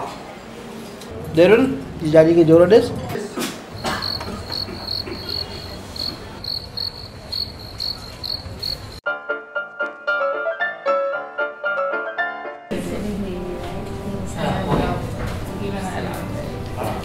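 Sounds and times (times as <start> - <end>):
cricket chirping: 3.7 - 9.0.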